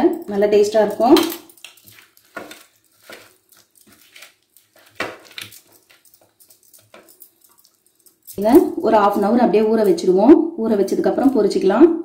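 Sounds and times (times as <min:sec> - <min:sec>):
hand mixing fish in steel bowl: 0:00.3 - 0:09.9.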